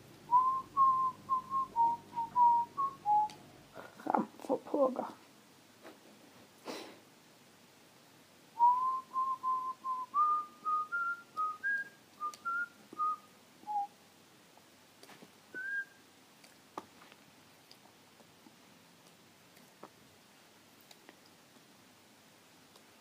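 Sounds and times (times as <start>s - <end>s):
person whistling a tune: 0.3s - 3.3s, 8.6s - 13.9s, 15.6s - 15.9s.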